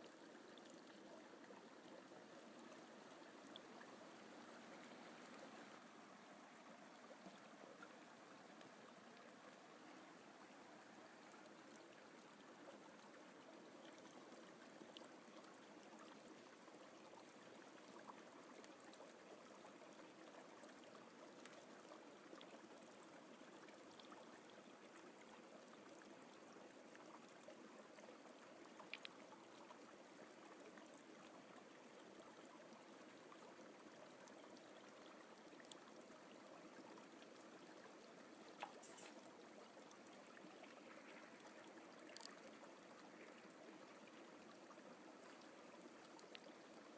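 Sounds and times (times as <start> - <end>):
faint stream rushing: 0.0 - 18.0, 34.4 - 46.9.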